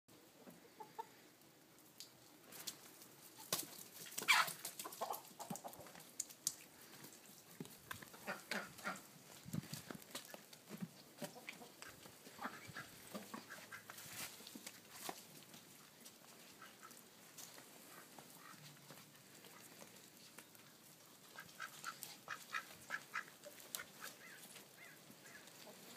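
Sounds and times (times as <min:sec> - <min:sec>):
poultry clucking: 0:00.3 - 0:01.3, 0:03.4 - 0:06.0, 0:08.0 - 0:15.1, 0:16.4 - 0:17.1, 0:17.8 - 0:20.6, 0:21.2 - 0:25.9.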